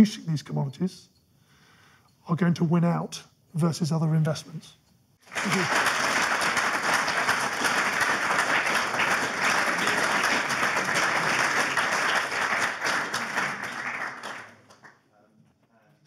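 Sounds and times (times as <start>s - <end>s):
audience applauding: 5.2s - 15.0s.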